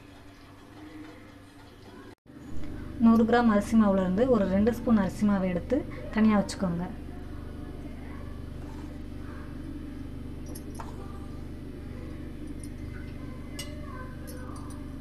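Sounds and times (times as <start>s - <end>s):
low hum: 2.3s - 15.0s
spoon clinking against steel bowl: 12.5s - 14.9s.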